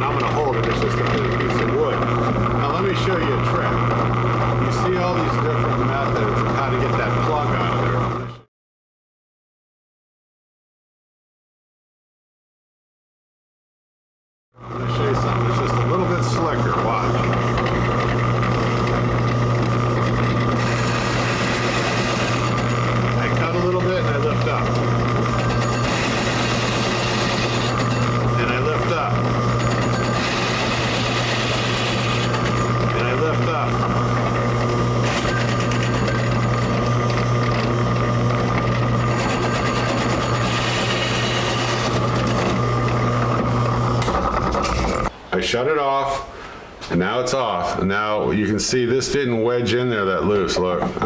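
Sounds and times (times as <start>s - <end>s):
drill press motor humming: 0.0s - 8.4s, 14.6s - 45.1s
hole saw cutting wood: 14.9s - 44.6s.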